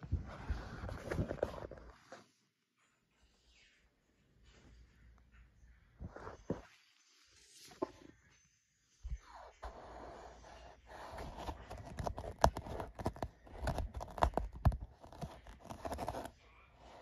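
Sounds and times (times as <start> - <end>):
cat paws clawing and scratching: 9.1 - 17.0.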